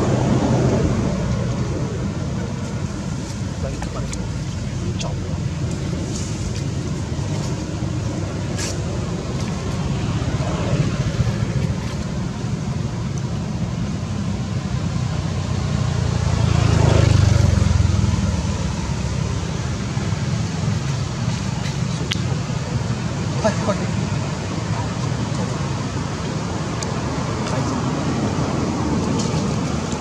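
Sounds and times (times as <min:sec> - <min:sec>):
vehicle passing: 0:00.0 - 0:12.6, 0:14.0 - 0:30.0
road traffic rumble: 0:00.0 - 0:30.0.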